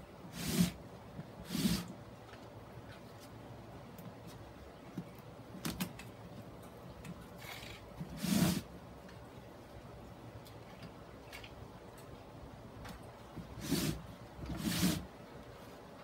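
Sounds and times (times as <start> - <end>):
rustling scrape: 0.3 - 0.8, 1.4 - 1.9, 7.4 - 8.7, 13.4 - 15.8.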